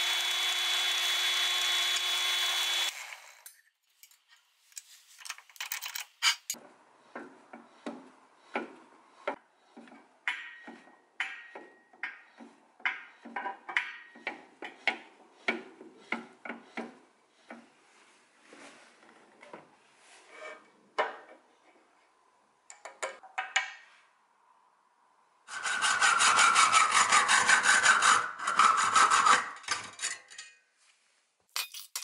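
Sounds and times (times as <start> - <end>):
drill press motor: 0.0 - 3.4.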